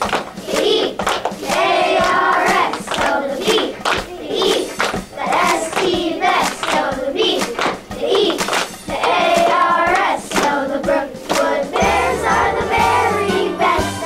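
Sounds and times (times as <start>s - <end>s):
clapping in time: 0.0s - 10.6s, 11.2s - 11.6s
children singing in unison: 0.4s - 14.0s.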